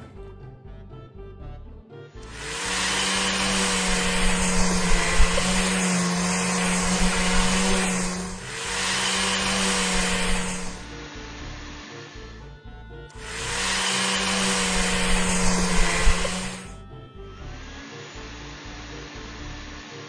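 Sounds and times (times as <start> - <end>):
car-wash brush whirring: 2.2 - 12.3, 13.2 - 16.8.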